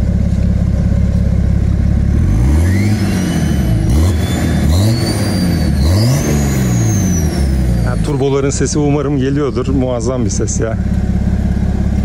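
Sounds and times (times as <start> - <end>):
diesel engine idling and revving: 0.0 - 12.0.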